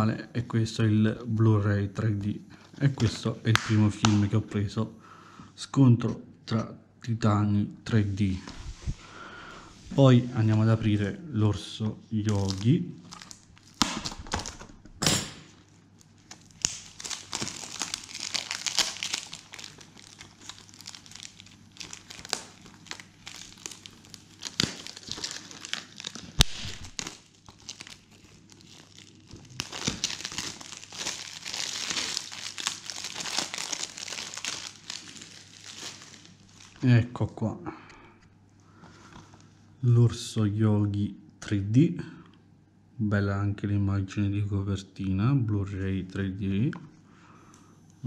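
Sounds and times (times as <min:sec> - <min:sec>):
cellophane crinkling: 0:12.2 - 0:14.8, 0:15.5 - 0:36.9.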